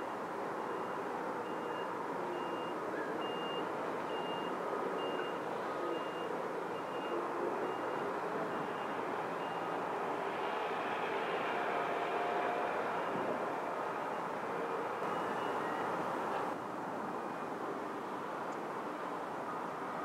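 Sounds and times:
reversing alarm beeping: 0.6 - 9.7, 15.0 - 16.6.

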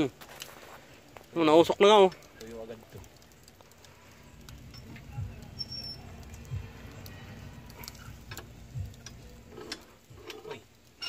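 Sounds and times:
soft low thumps: 6.2 - 7.0, 8.4 - 9.3
rotisserie spit scraping and clicking: 7.7 - 10.7.

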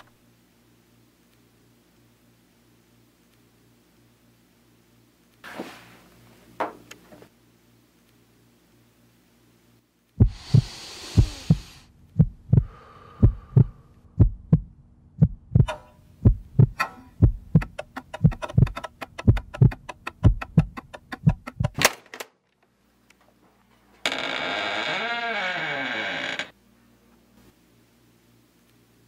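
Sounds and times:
heartbeat double beat: 10.2 - 21.8.

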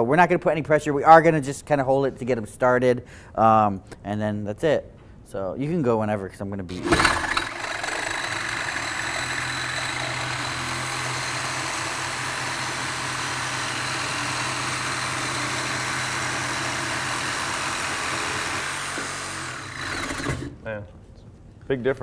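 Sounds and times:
reciprocating saws cutting metal pipe: 6.7 - 20.6.

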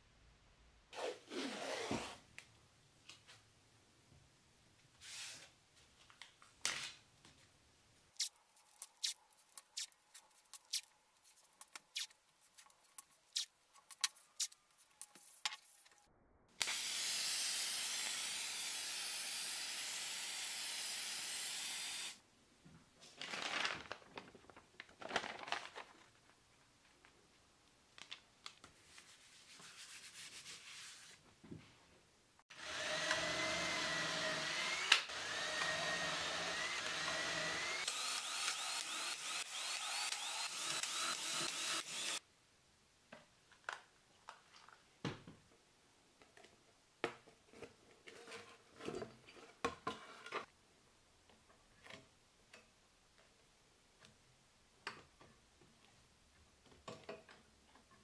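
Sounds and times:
cordless drill whining: 16.6 - 22.2, 32.5 - 42.2.

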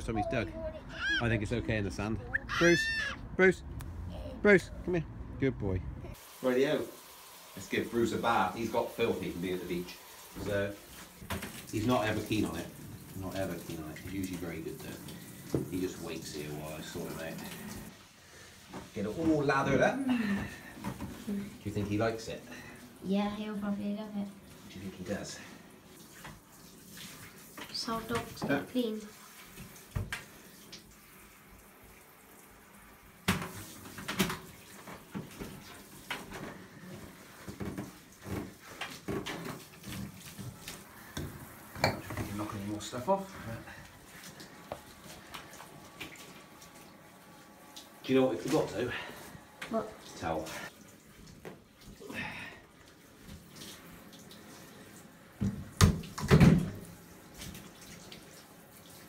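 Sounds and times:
shower water hissing: 6.1 - 59.0
splashes and knocks in tub: 55.4 - 58.0.

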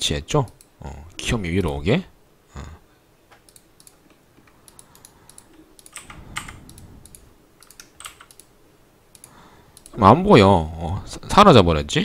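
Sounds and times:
computer keyboard typing: 3.5 - 8.5.

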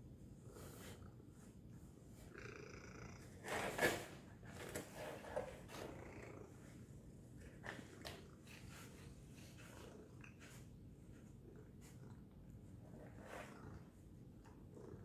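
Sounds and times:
cat purring: 0.4 - 4.0, 4.6 - 15.0.

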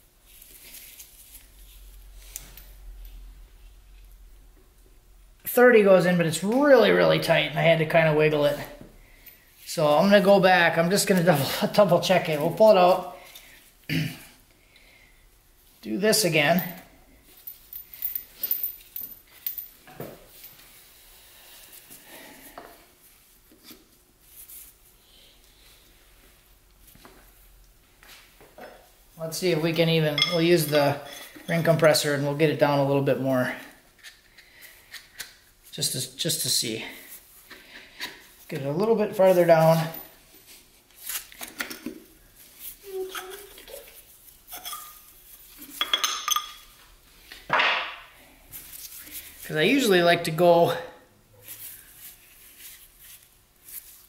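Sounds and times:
metal tools and engine parts clinking: 30.1 - 31.9, 45.8 - 46.8.

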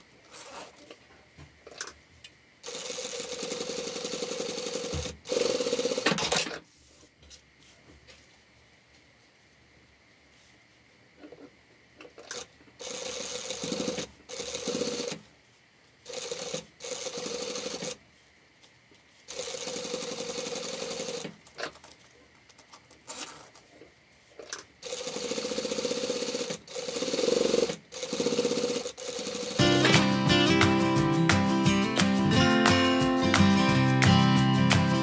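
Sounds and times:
sewing machine stitching: 2.6 - 6.6, 12.2 - 15.2, 16.1 - 18.0, 19.3 - 21.7, 24.5 - 29.6.

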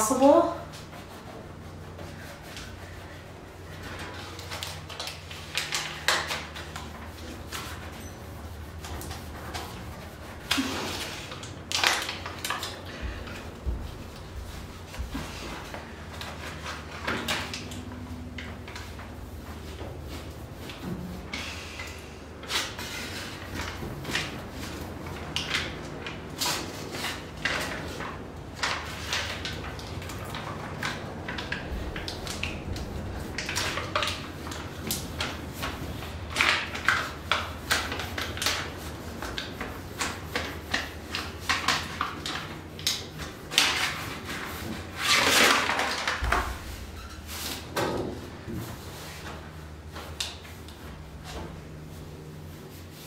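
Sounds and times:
hand rubbing mat on metal panel: 0.7 - 4.5
foil mat crinkling and rustling: 0.7 - 21.6, 22.3 - 53.0
backing paper peeling: 0.7 - 47.8.

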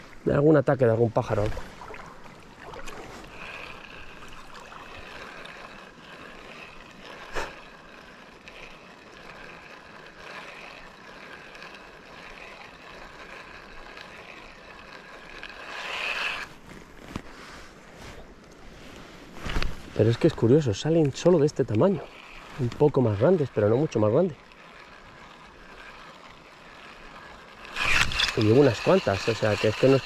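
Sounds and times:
river water rushing: 1.2 - 11.0.

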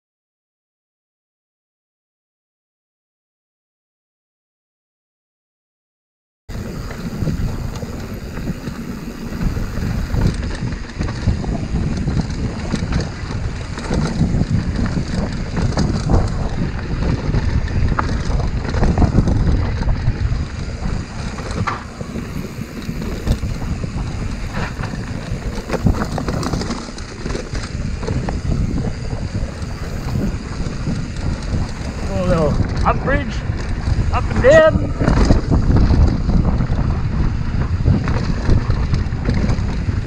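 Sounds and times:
tyres rumbling on dirt: 6.5 - 40.0
wind buffeting microphone: 6.5 - 40.0
bike knocks and rattles: 6.6 - 40.0.

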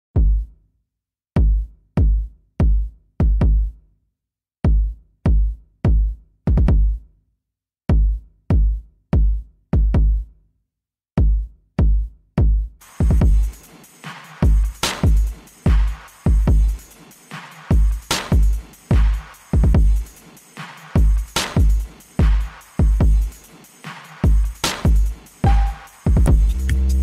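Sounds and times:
drum machine bass drum hits: 11.2 - 27.0.

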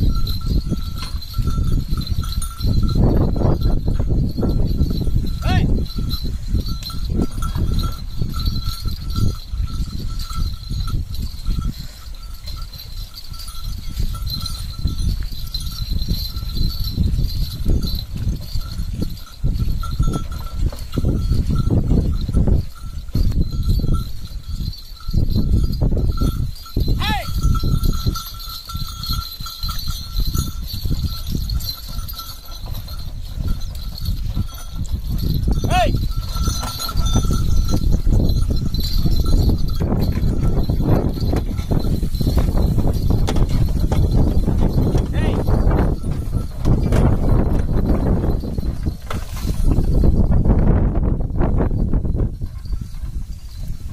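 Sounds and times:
bullock bells jingling: 0.0 - 53.9
cart rumbling: 0.0 - 53.9
animal footsteps: 27.4 - 50.2.

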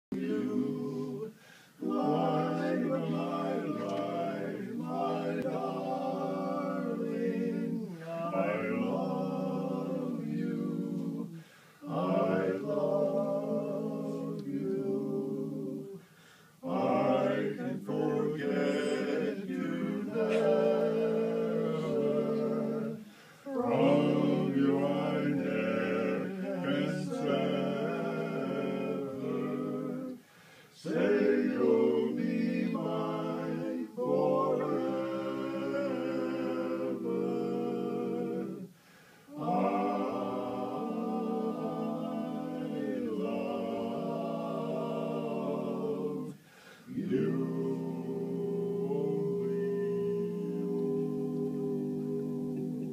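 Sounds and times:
male vocal quartet singing a cappella: 0.0 - 52.9.

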